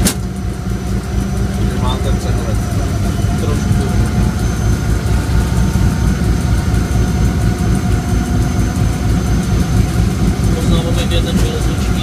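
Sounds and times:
locomotive diesel engine running: 0.0 - 12.0.

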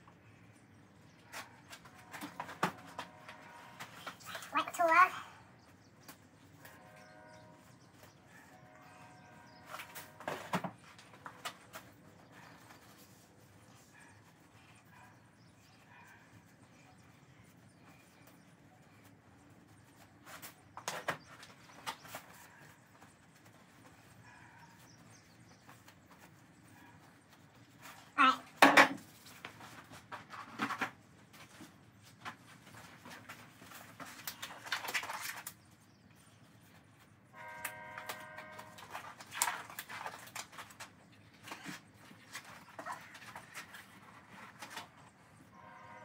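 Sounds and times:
tools and bucket clattering: 9.6 - 12.8, 28.5 - 35.5, 37.4 - 45.4.

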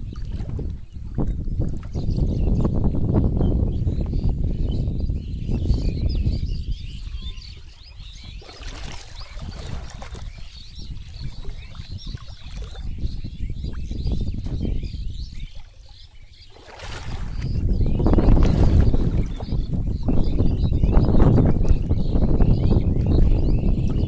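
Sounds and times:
water sloshing from wading: 0.0 - 2.3, 7.0 - 22.2
small birds chirping: 0.0 - 24.0
water splash: 8.2 - 13.0, 16.5 - 19.6.

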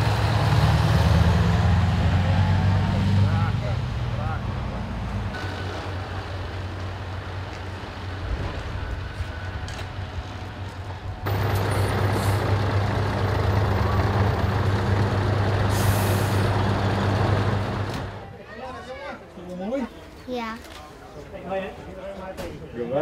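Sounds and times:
truck driving past: 0.0 - 10.6, 11.2 - 18.3
diesel truck engines running: 0.0 - 18.4
air brake hiss: 15.7 - 16.5.

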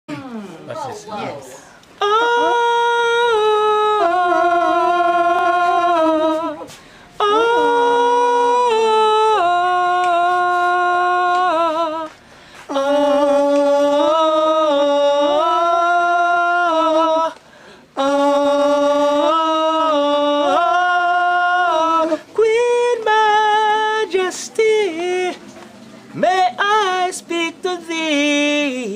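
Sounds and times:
man singing unaccompanied: 0.7 - 28.9
singer breathing: 6.7 - 7.2, 12.2 - 12.7, 17.4 - 18.0.

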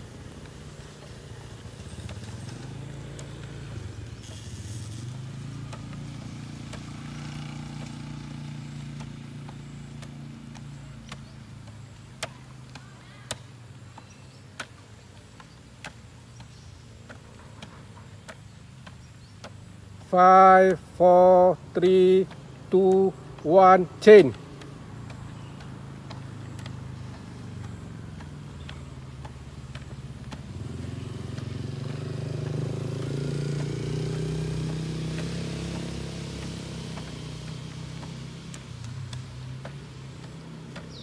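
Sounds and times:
vehicle engine humming: 0.0 - 41.0.

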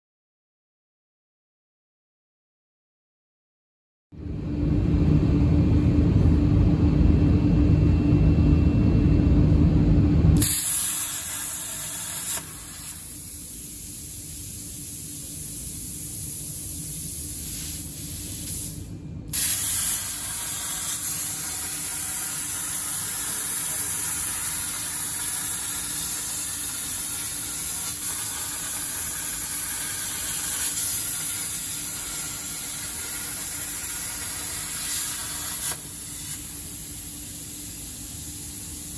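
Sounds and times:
loud low rumble with hum: 4.1 - 11.1
plasma torch hissing: 10.4 - 38.9.

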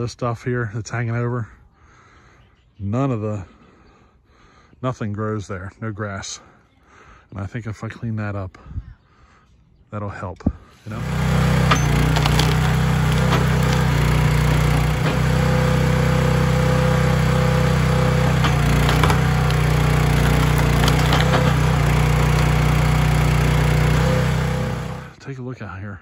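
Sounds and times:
log splitter engine running: 10.8 - 25.2
wood cracking and popping: 10.9 - 23.3.

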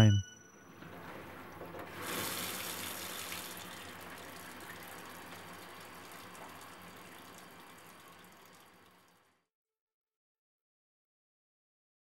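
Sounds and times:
faucet water splashing into sink: 2.0 - 9.3.

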